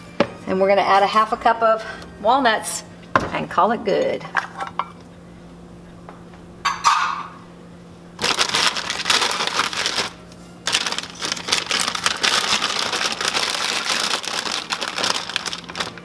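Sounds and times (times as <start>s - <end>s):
bag crinkling and rustling: 8.2s - 16.0s.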